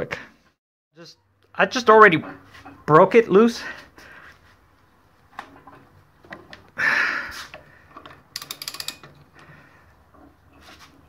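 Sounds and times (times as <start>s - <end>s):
socket ratchet clicking: 8.0s - 9.2s
metal tools clattering: 8.0s - 9.5s.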